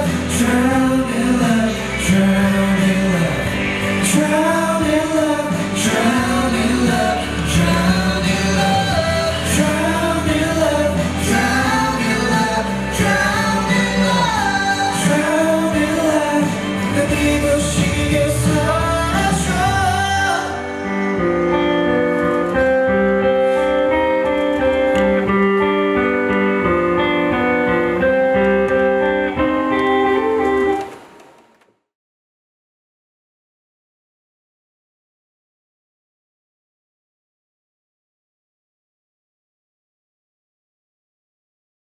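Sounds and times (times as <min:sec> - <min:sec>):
man singing: 0:00.0 - 0:22.6
band playing pop ballad: 0:00.0 - 0:31.1.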